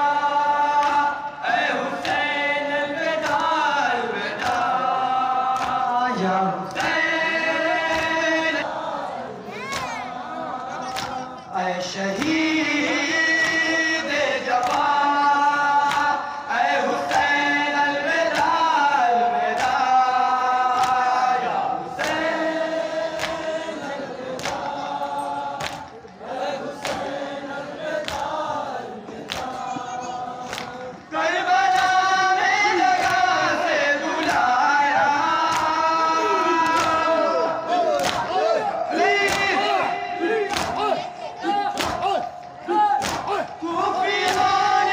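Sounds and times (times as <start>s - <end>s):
men chanting in unison: 0.0s - 44.9s.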